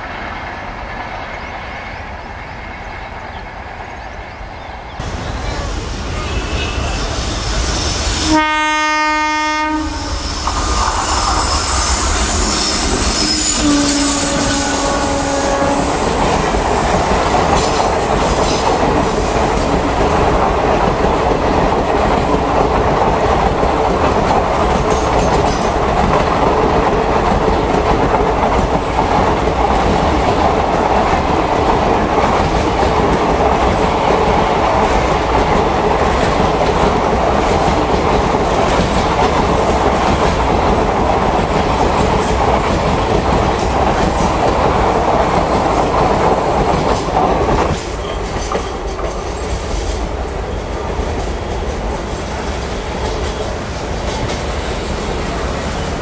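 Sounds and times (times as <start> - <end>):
locomotive horn: 8.2 - 10.2, 11.7 - 16.4
train wheels clattering over rail joints: 14.2 - 50.1.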